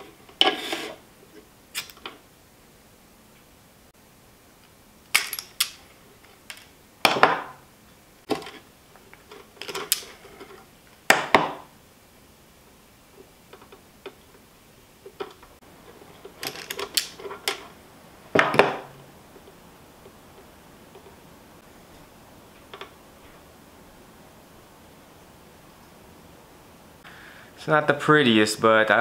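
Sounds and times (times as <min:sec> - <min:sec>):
quiet handling noise: 0:13.1 - 0:24.0.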